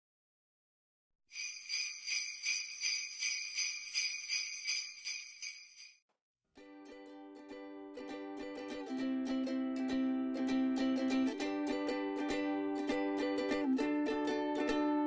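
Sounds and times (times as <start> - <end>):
jingle bells shaken: 1.3 - 6.0.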